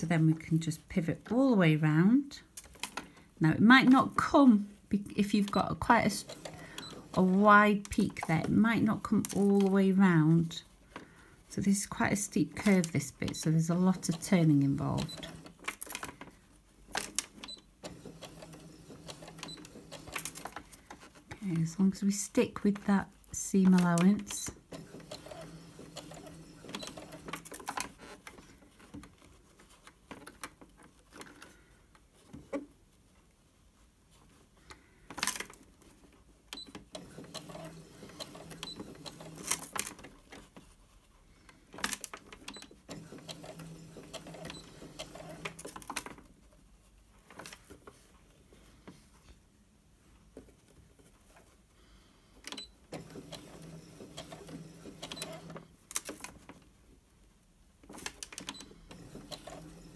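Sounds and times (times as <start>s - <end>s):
sewing machine stitching: 5.0s - 10.6s, 11.8s - 16.3s, 16.9s - 29.0s, 36.5s - 40.7s, 41.7s - 46.3s, 52.4s - 56.6s, 57.8s - 59.9s.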